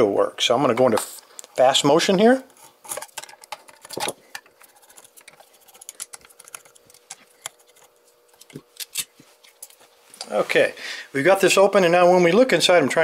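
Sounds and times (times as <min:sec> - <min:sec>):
metal parts being handled: 0:02.8 - 0:09.8.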